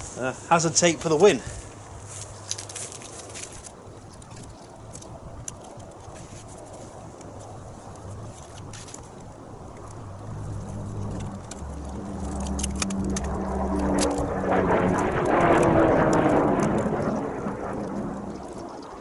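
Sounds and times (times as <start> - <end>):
vehicle engine passing: 10.0 - 18.4.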